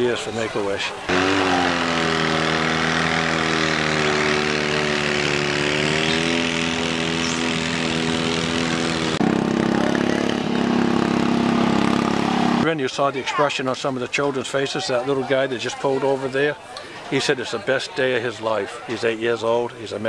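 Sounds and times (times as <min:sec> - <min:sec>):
tractor engine running: 0:01.0 - 0:12.8
louder engine running: 0:01.1 - 0:12.8.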